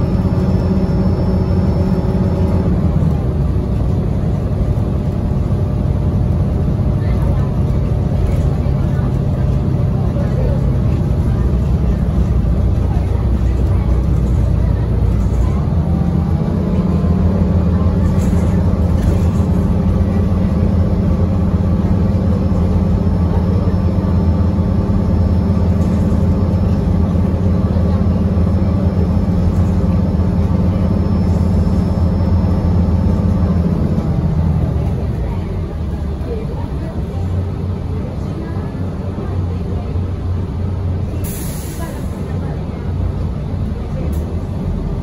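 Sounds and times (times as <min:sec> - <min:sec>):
bus engine from inside cabin: 0:00.0 - 0:45.0.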